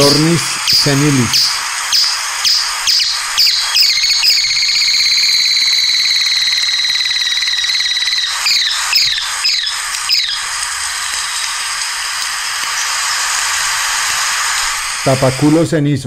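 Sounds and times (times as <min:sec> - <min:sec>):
high-pitched bird trill: 0:00.0 - 0:11.6
bird song with trill: 0:00.7 - 0:10.5.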